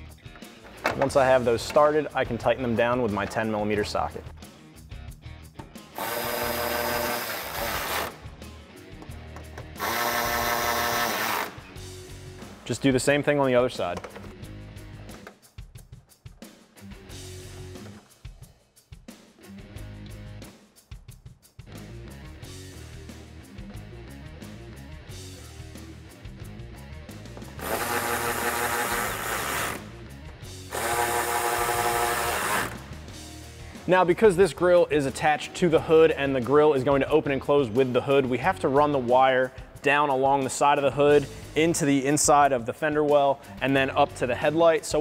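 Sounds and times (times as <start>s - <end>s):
background music: 0.0s - 45.0s
electric ratchet motor whirring: 6.0s - 8.2s, 9.8s - 11.6s, 27.6s - 29.9s, 30.7s - 32.9s.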